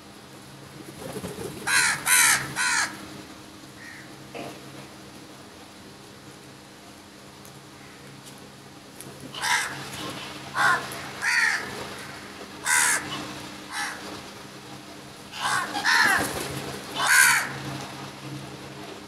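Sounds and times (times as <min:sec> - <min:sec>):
crows cawing: 0:01.6 - 0:03.0, 0:03.8 - 0:04.2, 0:07.8 - 0:08.1, 0:09.3 - 0:14.1, 0:15.3 - 0:17.6.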